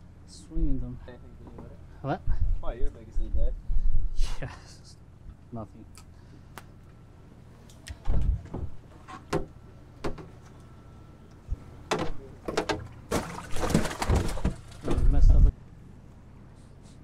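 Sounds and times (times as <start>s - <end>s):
fish splashing in water: 13.0s - 14.8s.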